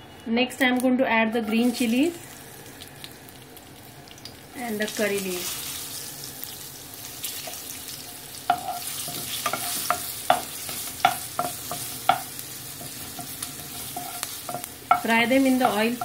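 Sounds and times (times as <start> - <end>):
chilies sizzling in hot oil: 0.1 - 16.0
spatula knocking against pan: 9.4 - 16.0.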